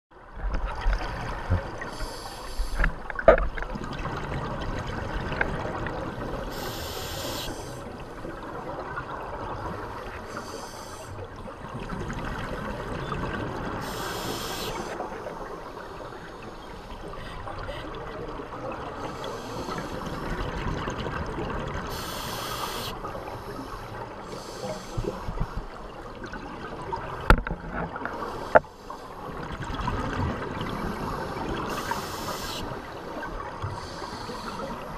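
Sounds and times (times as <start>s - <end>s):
regulator breath hiss: 1.9s - 2.9s, 6.5s - 7.9s, 10.3s - 11.1s, 13.8s - 15.0s, 19.1s - 20.0s, 21.9s - 25.2s, 30.8s - 32.8s, 33.8s - 34.9s.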